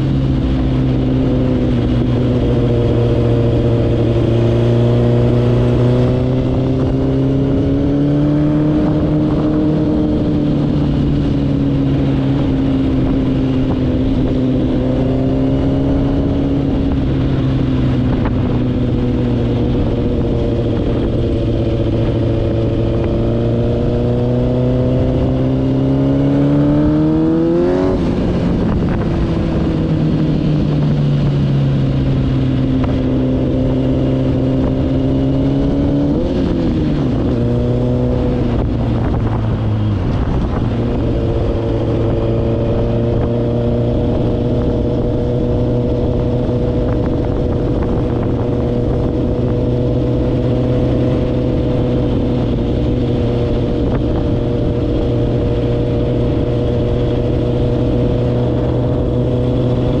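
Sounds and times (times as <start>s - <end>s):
quad bike engine running: 0.0s - 60.0s.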